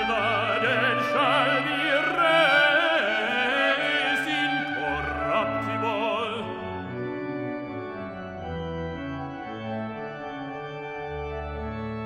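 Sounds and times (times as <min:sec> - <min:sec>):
man singing with vibrato: 0:00.0 - 0:06.8
pipe organ chords: 0:00.0 - 0:12.0.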